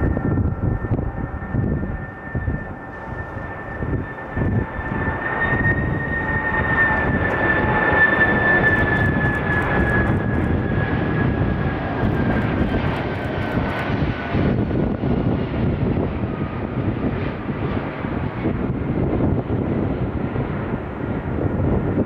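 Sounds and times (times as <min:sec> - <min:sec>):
high engine whine: 0:00.0 - 0:22.0
jet engines rumbling: 0:00.0 - 0:22.0.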